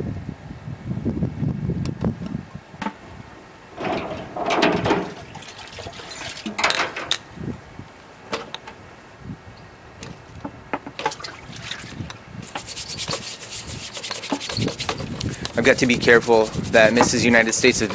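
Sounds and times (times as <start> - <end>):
metal parts knocking: 3.8 - 5.2
water splashing in tank: 4.9 - 6.6, 11.0 - 12.1.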